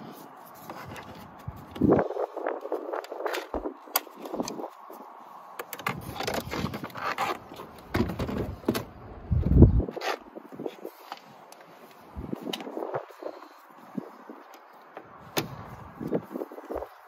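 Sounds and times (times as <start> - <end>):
plastic trim panel scraping: 5.7 - 8.9.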